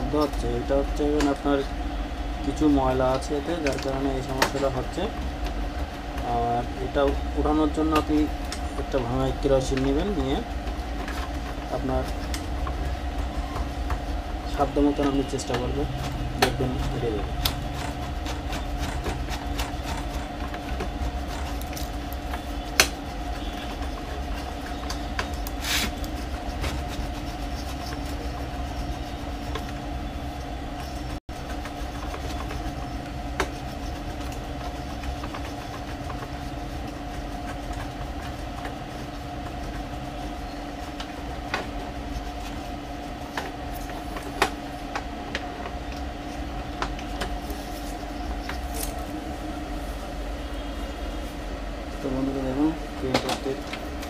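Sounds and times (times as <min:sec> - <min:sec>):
low background hum: 0:00.0 - 0:54.0
clicks and knocks of printer parts: 0:03.2 - 0:04.8, 0:53.1 - 0:53.9.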